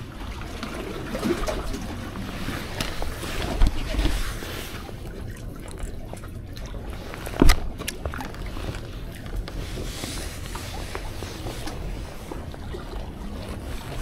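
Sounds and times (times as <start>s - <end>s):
wind and sea rumble: 0.0s - 14.0s.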